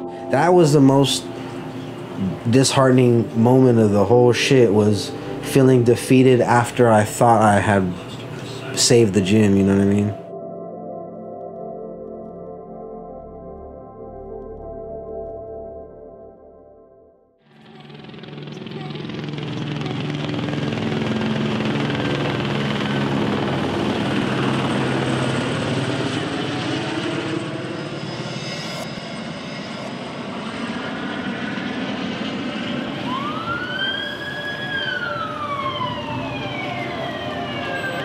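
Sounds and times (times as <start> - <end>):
police siren wailing: 0.0 - 10.3, 32.3 - 38.0
night street ambience drone: 0.0 - 10.6, 17.6 - 38.0.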